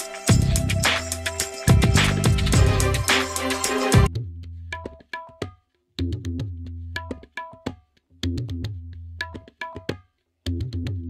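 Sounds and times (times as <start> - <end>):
percussive hits and high notes: 0.0 - 4.1.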